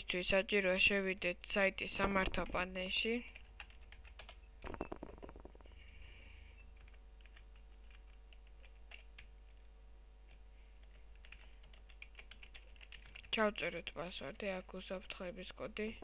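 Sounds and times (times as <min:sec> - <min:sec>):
steady low hum: 0:00.0 - 0:16.0
computer keyboard and mouse clicks: 0:06.8 - 0:09.3, 0:10.3 - 0:13.3.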